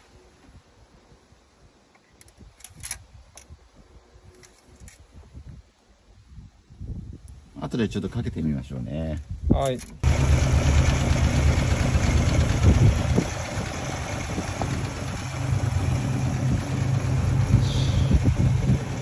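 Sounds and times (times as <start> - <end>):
car engine idling: 10.0 - 19.0.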